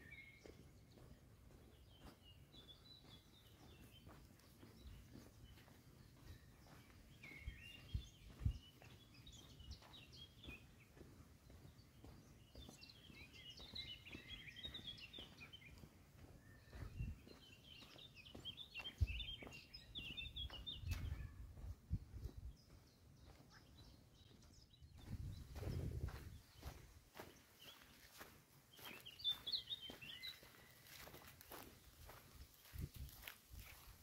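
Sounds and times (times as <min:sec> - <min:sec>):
faint songbird chirping: 0:00.0 - 0:34.0
footsteps on forest path: 0:00.0 - 0:34.0.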